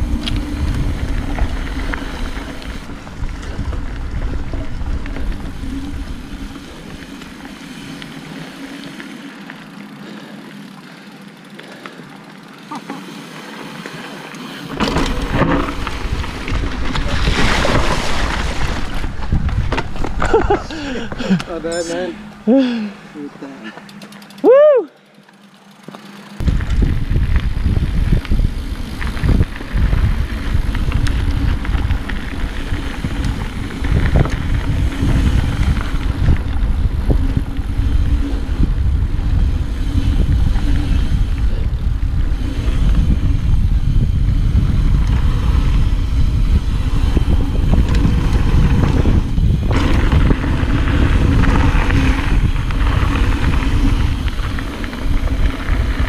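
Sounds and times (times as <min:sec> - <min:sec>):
wind buffeting microphone: 0:00.0 - 0:07.9, 0:14.7 - 0:21.7, 0:26.4 - 0:56.0
bike knocking and rattling: 0:00.0 - 0:22.5, 0:23.5 - 0:56.0
bike tyres rumbling on dirt: 0:00.0 - 0:56.0.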